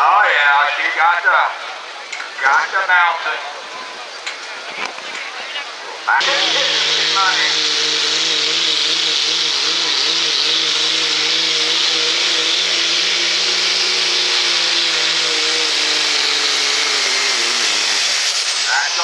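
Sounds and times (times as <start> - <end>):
loud steady hiss: 6.1 - 19.0
diesel engine revving hard: 6.2 - 19.0.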